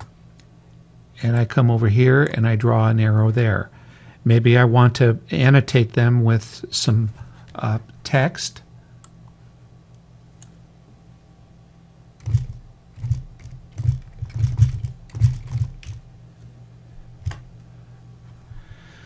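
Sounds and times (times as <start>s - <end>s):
computer keyboard typing: 12.2s - 16.0s.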